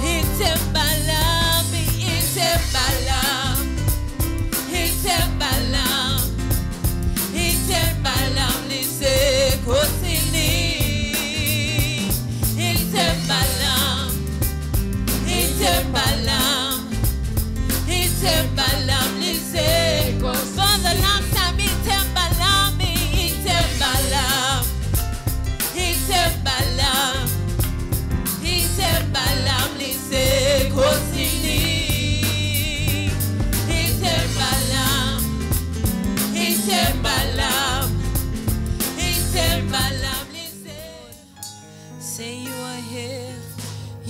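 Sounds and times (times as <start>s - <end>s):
woman singing into a microphone: 0.0s - 3.8s, 4.7s - 6.4s, 7.3s - 14.2s, 15.2s - 17.0s, 17.8s - 24.9s, 25.7s - 27.4s, 28.4s - 35.3s, 38.9s - 41.4s, 42.0s - 44.0s
backing music with bass and drums: 0.0s - 41.2s, 43.5s - 44.0s.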